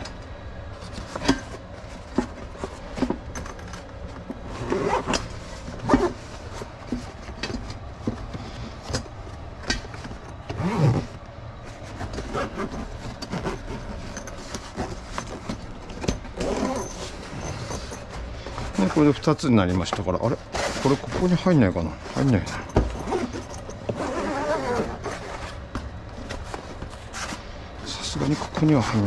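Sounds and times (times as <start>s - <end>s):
canvas rustling: 4.2s - 29.0s
zipper being pulled: 4.5s - 6.2s, 10.5s - 11.2s, 12.0s - 14.0s, 16.3s - 18.1s, 23.0s - 25.6s.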